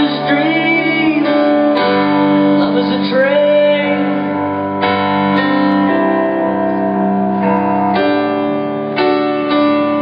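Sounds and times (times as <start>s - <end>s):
person singing: 0.0s - 4.6s
keyboard chords: 0.0s - 10.0s
rock band playing live: 0.0s - 10.0s.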